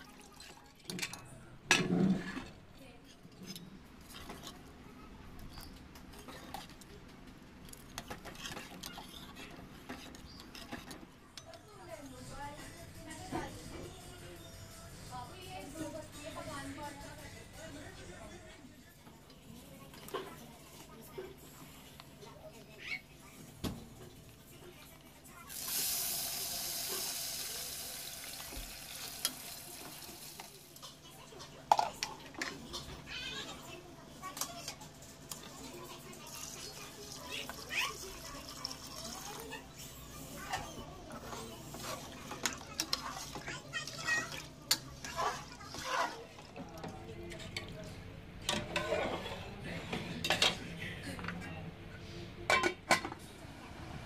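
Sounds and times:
rice sizzling in hot oil: 25.5 - 30.9.

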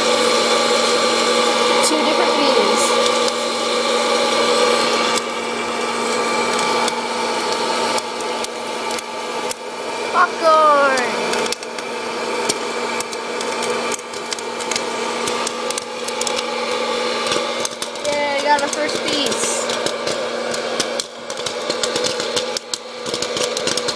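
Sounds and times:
popcorn popper fan whine: 0.0 - 23.9
popcorn kernels popping: 3.0 - 9.8, 10.8 - 23.9.

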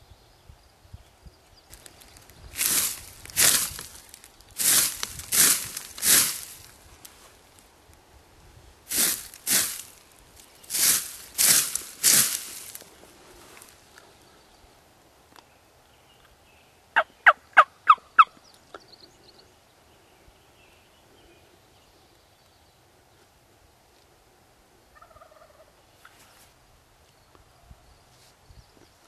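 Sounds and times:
turkey yelps: 17.0 - 18.3.

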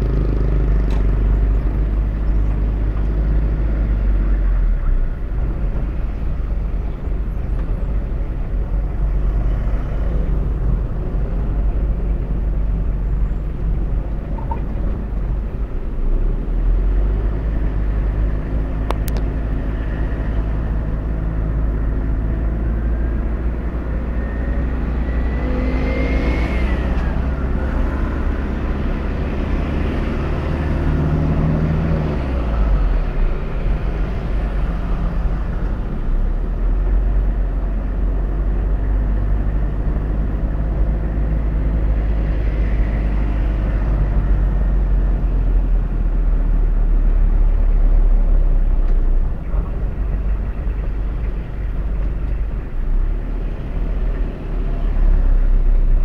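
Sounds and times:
car engine and road drone: 0.0 - 56.0.

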